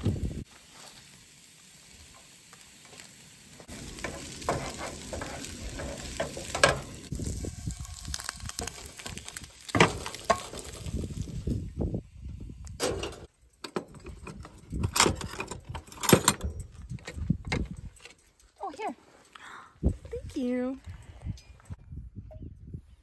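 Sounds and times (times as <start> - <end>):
food frying in a pan: 0.2 - 11.6
wooden spatula scraping pan: 3.8 - 6.8.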